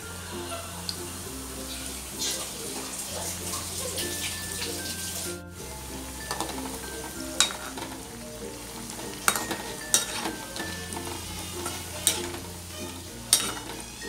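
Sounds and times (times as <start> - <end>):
oil sizzling: 0.0 - 14.0
metal spoon clinking on pan: 6.2 - 8.1, 9.0 - 12.5, 13.2 - 14.0.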